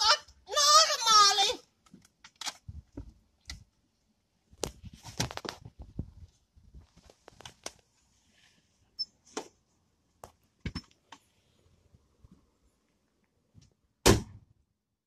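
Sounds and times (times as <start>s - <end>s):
rustling of bags and clothes: 4.6s - 9.7s.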